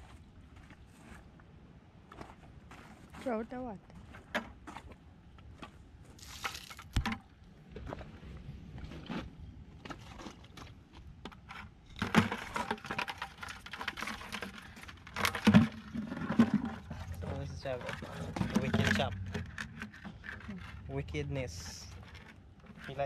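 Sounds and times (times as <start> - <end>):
plastic bucket clicking and rattling: 11.3 - 20.9.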